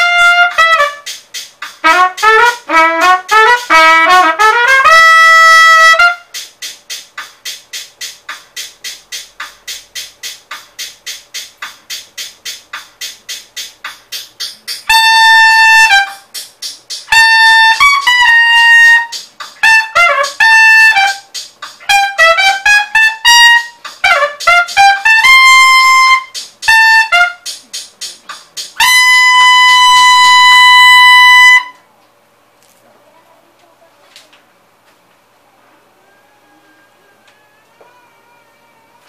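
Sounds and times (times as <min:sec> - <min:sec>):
solo trumpet playing: 0:00.0 - 0:01.2, 0:01.8 - 0:06.4, 0:14.9 - 0:16.2, 0:17.1 - 0:27.5, 0:28.8 - 0:31.8.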